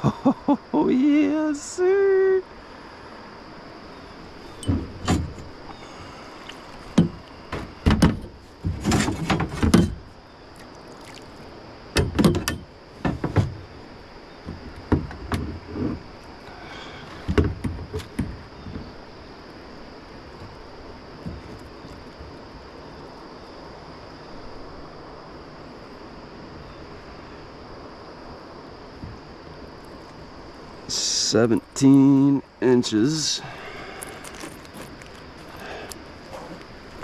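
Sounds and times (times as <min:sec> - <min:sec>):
knocks on plastic kayak hull: 0:07.0 - 0:10.0.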